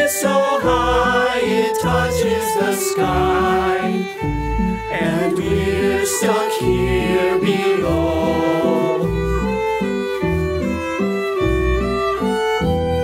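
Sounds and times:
folk song with fiddle and bass: 0.0s - 13.0s.

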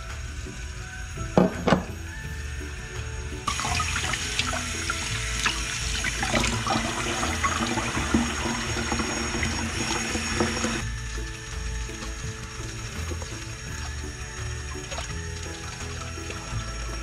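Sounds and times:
background music: 0.0s - 17.0s
water running from tap: 3.4s - 11.3s, 11.9s - 17.0s.

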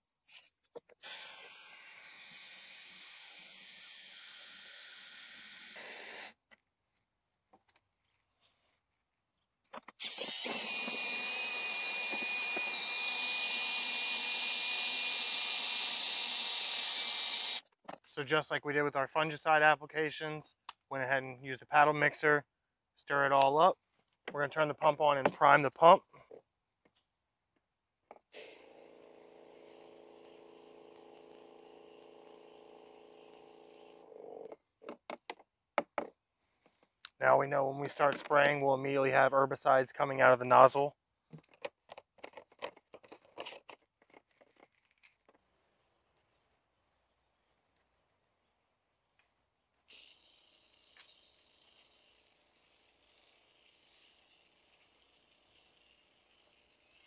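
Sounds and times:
drill paddle mixer whining: 10.0s - 17.6s, 28.4s - 34.5s, 49.9s - 57.0s
electric sprayer pump humming: 10.0s - 17.6s, 28.4s - 34.2s.

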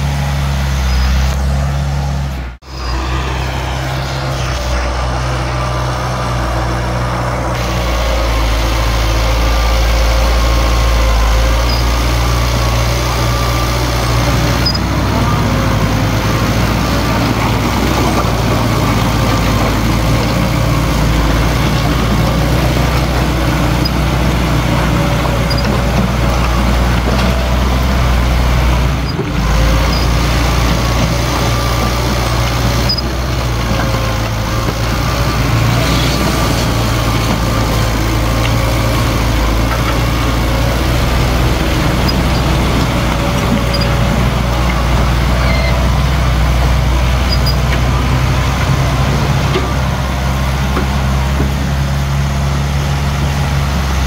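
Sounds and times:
heavy diesel engine running: 0.0s - 54.0s.

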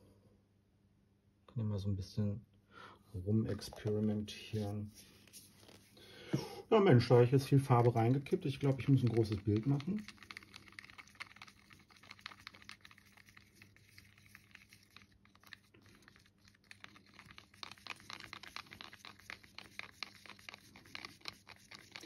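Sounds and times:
stick stirring thick paint: 7.1s - 22.0s.

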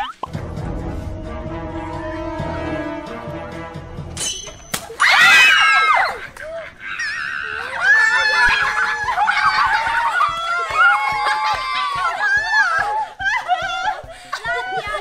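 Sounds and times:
children squealing and laughing: 4.8s - 15.0s
loud screaming: 5.0s - 6.2s, 6.8s - 12.9s.

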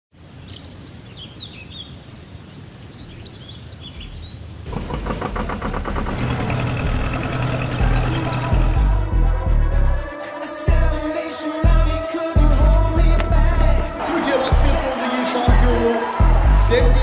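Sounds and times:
birds chirping and trilling: 0.2s - 9.0s
boat engine chugging: 4.7s - 9.0s.

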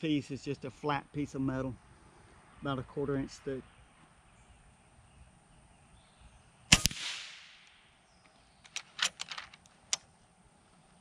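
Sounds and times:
air rifle shot: 6.7s - 7.9s
small sharp clicks: 7.6s - 10.1s.

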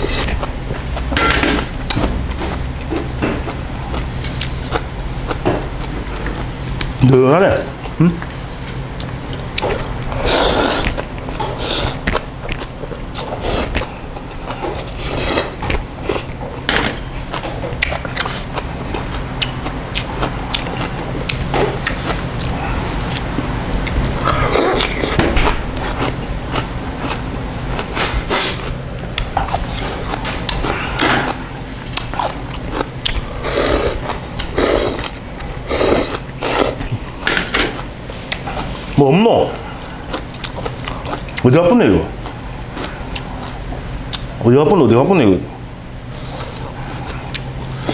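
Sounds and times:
man chewing: 0.0s - 44.4s, 45.6s - 47.9s
man slurping noodles: 10.1s - 11.0s, 15.0s - 16.3s, 24.2s - 25.2s, 33.3s - 36.8s.

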